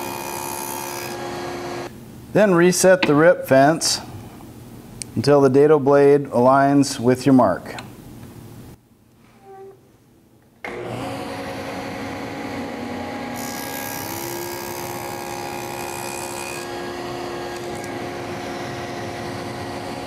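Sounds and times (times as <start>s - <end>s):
table saw cutting wood: 0.0s - 1.9s, 10.7s - 20.0s.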